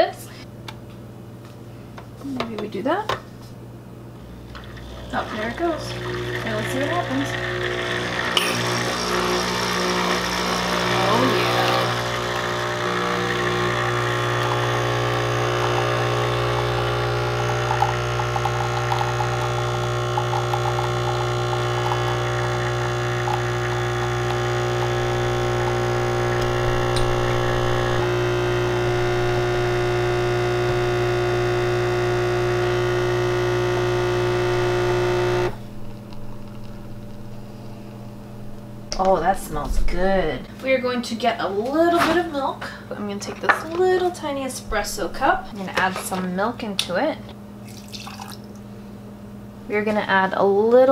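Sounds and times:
coffee machine pump humming: 0:04.2 - 0:40.4, 0:41.5 - 0:49.0.

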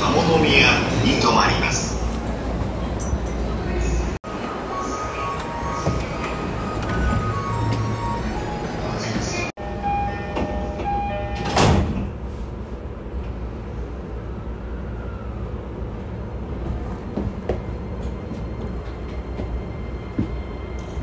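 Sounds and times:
train doors shutting: 0:00.0 - 0:13.6
low rumble in train carriage: 0:00.0 - 0:21.0.

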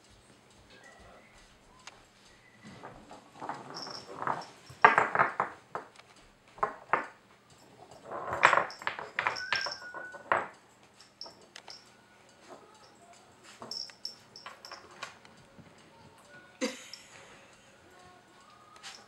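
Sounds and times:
wooden pegs clattering on wood: 0:02.6 - 0:15.4.

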